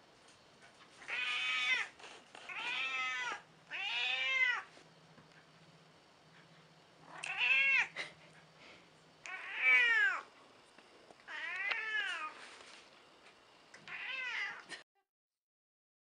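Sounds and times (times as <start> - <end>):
cat meowing: 1.0 - 1.9, 2.5 - 4.7, 7.0 - 8.0, 9.2 - 10.3, 11.3 - 12.4, 13.9 - 14.7.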